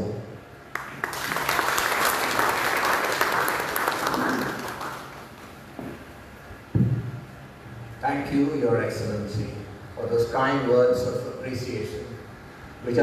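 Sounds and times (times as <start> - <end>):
audience applauding: 0.7 - 5.6.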